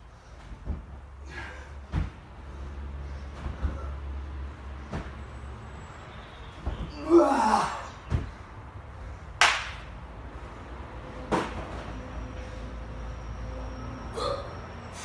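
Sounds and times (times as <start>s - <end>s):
dull thud: 1.9s - 2.2s
sharp slaps: 9.4s - 9.9s.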